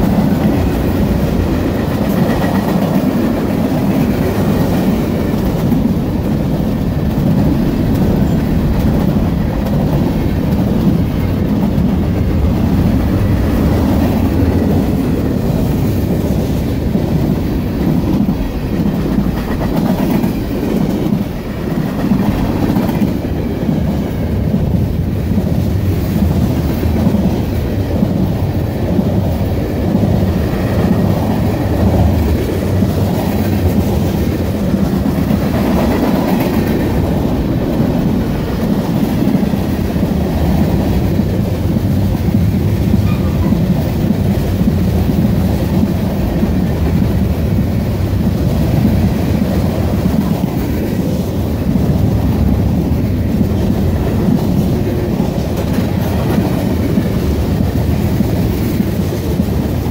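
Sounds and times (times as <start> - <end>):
train wheels rumbling on track: 0.0 - 59.9.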